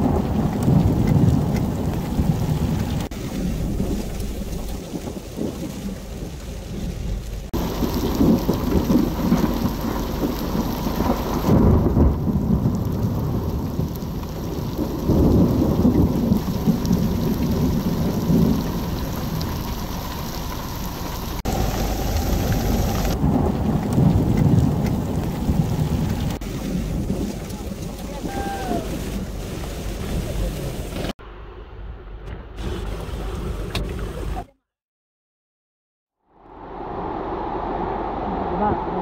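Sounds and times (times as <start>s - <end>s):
heavy rain pouring: 0.0s - 31.2s
thunder rumbling: 0.0s - 34.3s.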